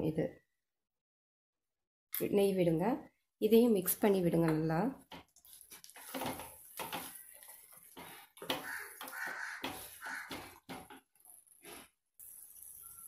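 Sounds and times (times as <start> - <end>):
wooden spatula scraping a pan: 5.1 - 13.0.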